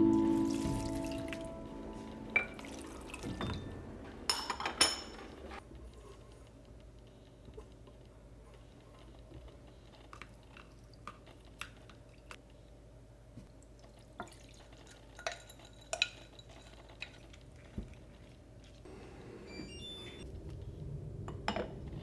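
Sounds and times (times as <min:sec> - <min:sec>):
glass jar and pot clinking: 0:00.0 - 0:05.2, 0:15.2 - 0:17.1.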